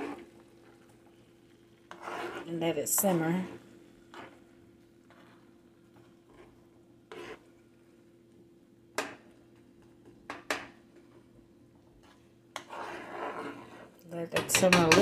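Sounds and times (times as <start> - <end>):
metal spoon scraping a skillet: 0.0 - 0.3, 1.9 - 4.4, 6.3 - 7.5, 12.0 - 15.0.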